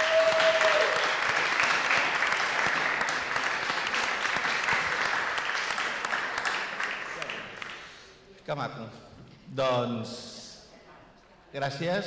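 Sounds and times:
audience applause: 0.0 - 7.9.

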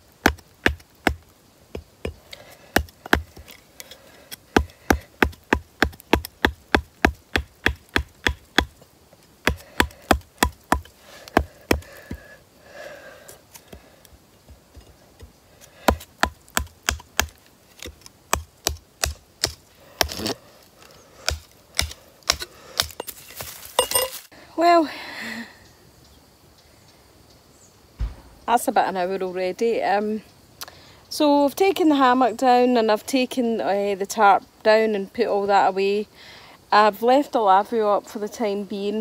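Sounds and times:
hatchet chopping wood: 0.2 - 8.8, 9.4 - 12.2, 15.9 - 20.4, 21.2 - 23.2.

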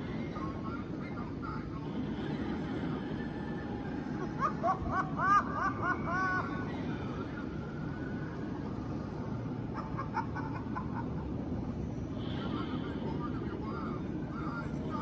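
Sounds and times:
high-pitched cackling laugh: 0.0 - 15.0
steady low hum: 0.0 - 15.0.

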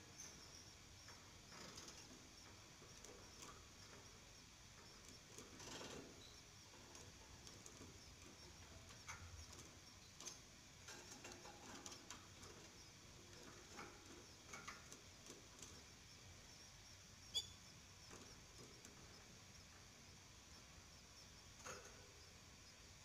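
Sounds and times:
canaries cheeping: 17.3 - 19.3.

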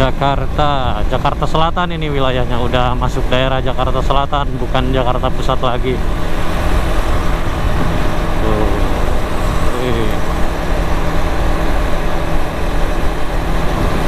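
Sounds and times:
motorcycle engine running: 5.8 - 14.0
wind rumble on microphone: 5.8 - 14.0.

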